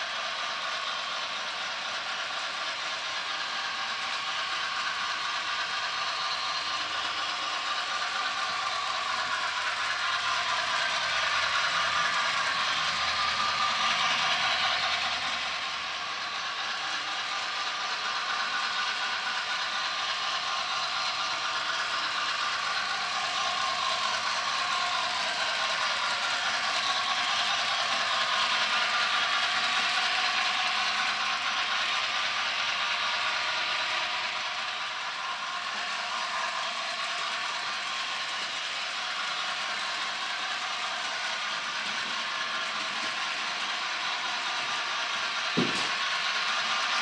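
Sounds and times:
model train motor whir: 0:00.0 - 0:47.0
wheels clattering on rails: 0:35.7 - 0:47.0.

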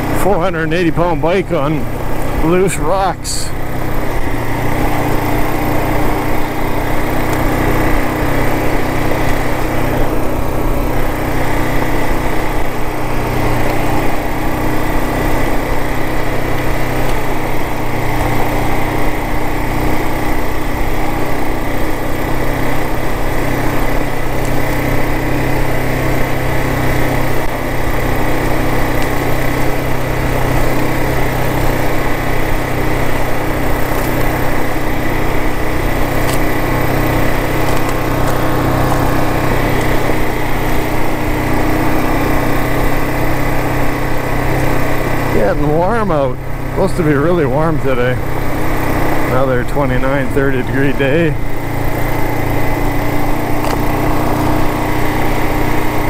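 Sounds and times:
motorcycle engine running: 0:00.0 - 0:56.0
tyres on loose rock: 0:00.1 - 0:14.4, 0:28.0 - 0:56.0.

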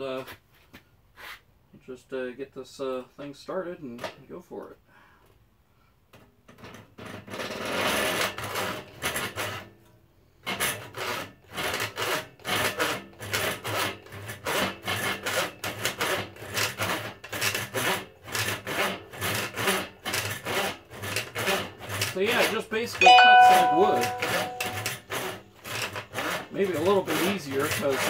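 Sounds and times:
hand saw cutting plastic: 0:10.5 - 0:22.6, 0:25.8 - 0:28.0.

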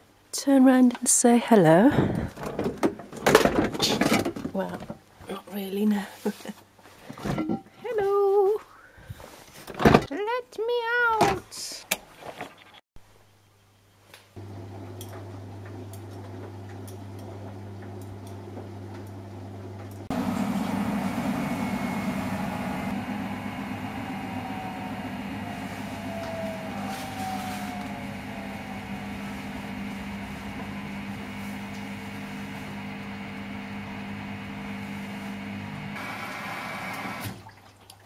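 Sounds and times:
drum spinning whir: 0:14.4 - 0:37.3
washing machine motor hum: 0:14.4 - 0:37.4
faint falling whine: 0:20.1 - 0:34.4.

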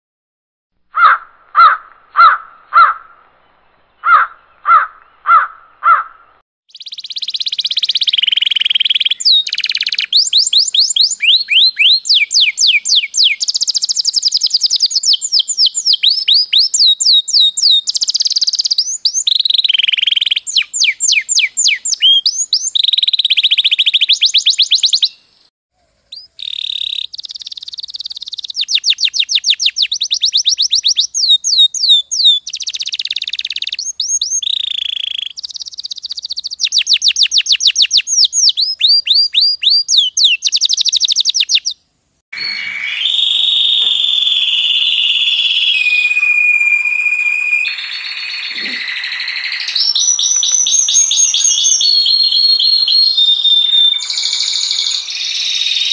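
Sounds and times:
canaries singing trills: 0:06.7 - 0:25.3, 0:26.1 - 0:41.8, 0:47.2 - 0:55.9.

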